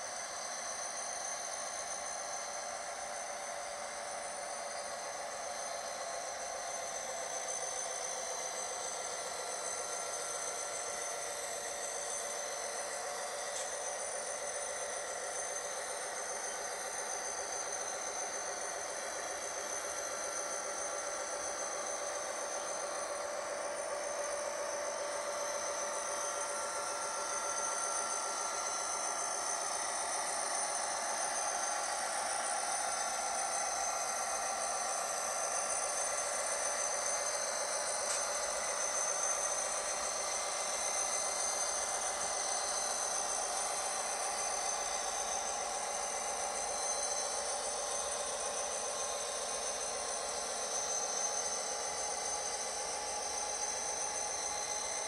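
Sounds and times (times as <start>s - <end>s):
model train wheels whirring: 37.0s - 50.1s.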